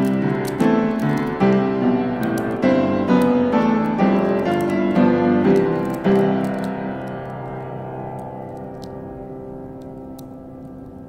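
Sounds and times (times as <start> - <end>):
piano music: 0.0 - 11.0.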